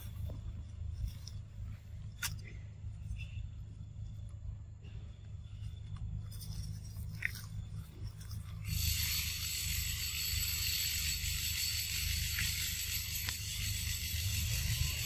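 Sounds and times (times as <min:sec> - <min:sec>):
forest insects buzzing: 0:05.0 - 0:15.0.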